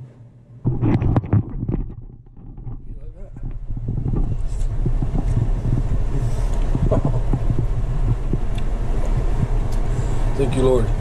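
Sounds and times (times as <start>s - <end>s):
low microphone rumble: 0.4s - 11.0s
wet chewing clicks and crackles: 6.5s - 8.7s.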